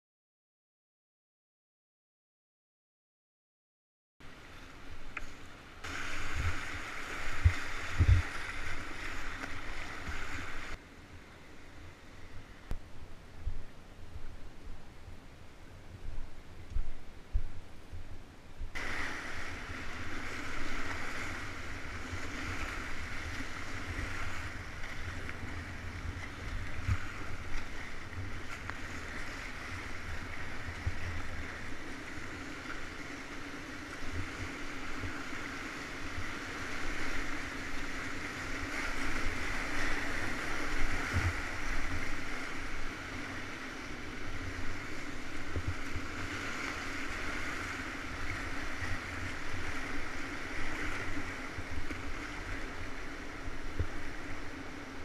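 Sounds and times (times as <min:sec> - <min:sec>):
river rapids rushing: 0:05.8 - 0:10.8, 0:18.8 - 0:54.9.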